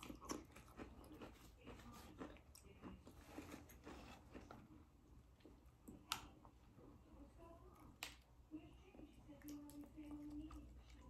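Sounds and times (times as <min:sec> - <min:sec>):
biting and chewing food: 0:00.0 - 0:06.5.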